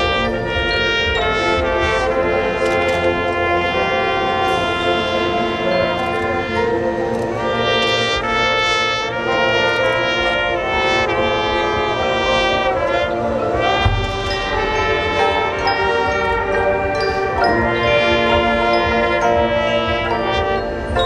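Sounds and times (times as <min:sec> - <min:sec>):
brass section playing chords: 0:00.0 - 0:21.0
low boom: 0:13.8 - 0:16.0.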